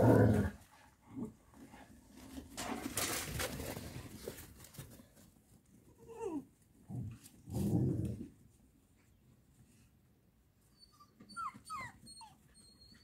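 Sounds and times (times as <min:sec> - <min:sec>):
rustling: 0:00.4 - 0:05.9
puppy whining: 0:06.0 - 0:06.5, 0:10.7 - 0:13.0.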